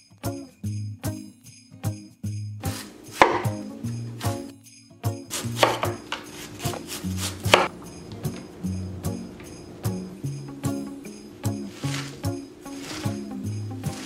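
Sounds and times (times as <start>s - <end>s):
light background music: 0.2s - 14.0s
knife slicing cabbage on board: 2.7s - 3.6s, 5.3s - 7.7s, 11.7s - 13.2s.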